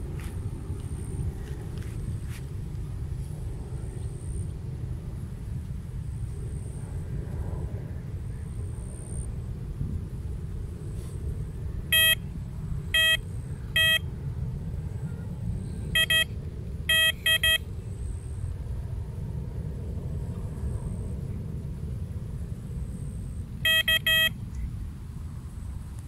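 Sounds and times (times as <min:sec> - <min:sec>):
low steady rumble: 0:00.0 - 0:26.0
bite alarm beeps: 0:11.9 - 0:12.2, 0:13.0 - 0:13.2, 0:13.8 - 0:14.1, 0:16.0 - 0:17.7, 0:23.7 - 0:24.4.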